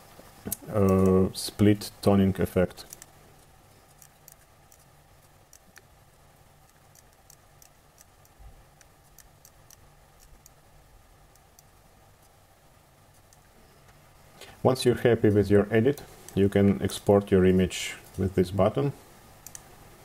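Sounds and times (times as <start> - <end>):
low steady hum: 0.0 - 20.0
computer mouse clicks: 2.8 - 3.1, 3.9 - 5.9, 6.6 - 10.6, 13.1 - 13.5, 19.4 - 19.7.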